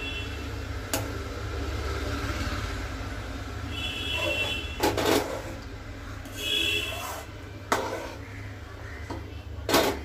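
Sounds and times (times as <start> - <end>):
ladle stirring milk in a pan: 5.0 - 8.4.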